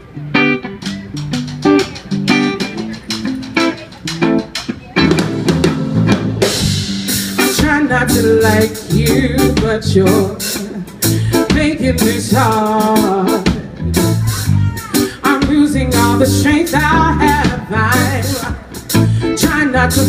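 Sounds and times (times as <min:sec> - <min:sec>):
guitar picking single notes: 0:00.0 - 0:20.0
live band playing: 0:00.0 - 0:20.0.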